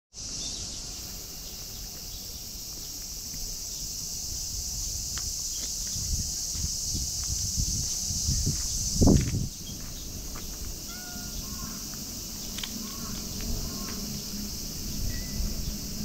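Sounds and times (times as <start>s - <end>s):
high-pitched insect chorus: 0.2s - 16.0s
footsteps on gravel: 5.0s - 10.8s, 11.4s - 14.1s.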